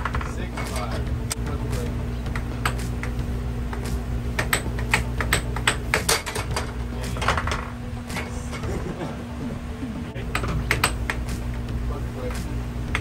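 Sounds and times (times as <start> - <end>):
air hockey puck and mallets clacking: 0.0 - 1.0, 2.3 - 8.7, 10.3 - 11.4
air blower hum: 0.0 - 13.0.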